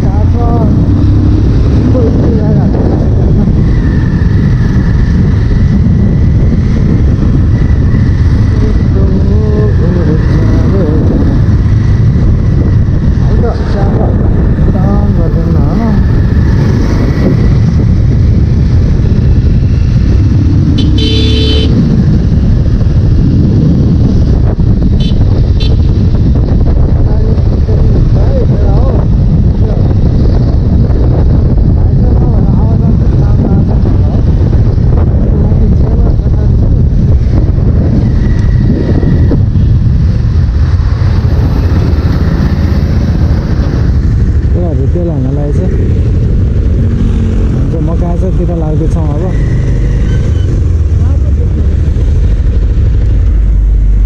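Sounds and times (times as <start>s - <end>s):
motorcycle engine rumble: 0.0s - 54.0s
vehicle horn honking: 20.8s - 21.8s, 25.0s - 25.8s.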